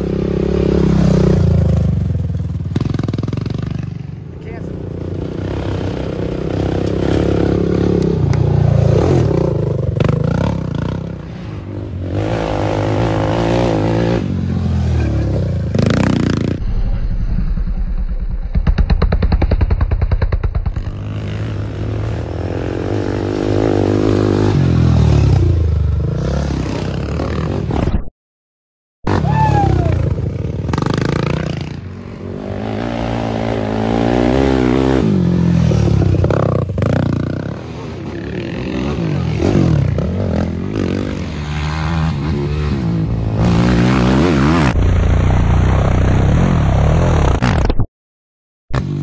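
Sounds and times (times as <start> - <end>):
quad engines revving past: 0.0 - 16.6, 29.1 - 47.4.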